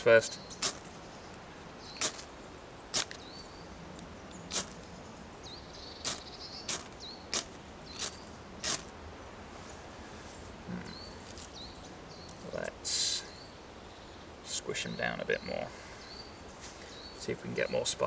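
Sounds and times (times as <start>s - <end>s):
ferro rod rasping strikes: 2.0s - 2.3s, 2.9s - 3.2s.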